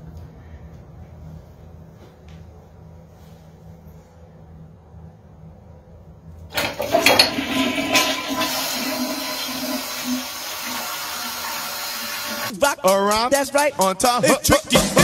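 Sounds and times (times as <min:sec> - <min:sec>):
urinal flushing water rush: 0:06.5 - 0:12.5.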